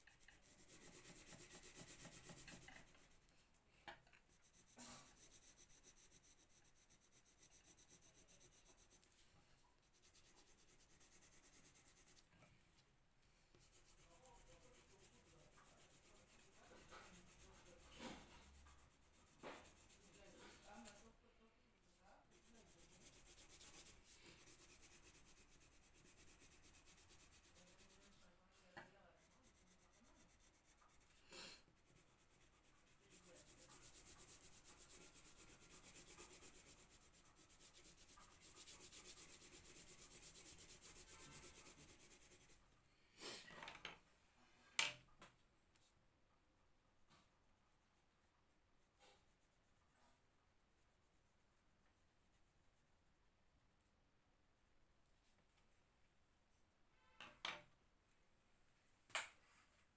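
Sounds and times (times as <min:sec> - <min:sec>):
pencil scratching on paper: 0:00.0 - 0:03.3, 0:04.1 - 0:12.4, 0:13.5 - 0:21.2, 0:22.3 - 0:42.6, 0:47.1 - 0:53.0.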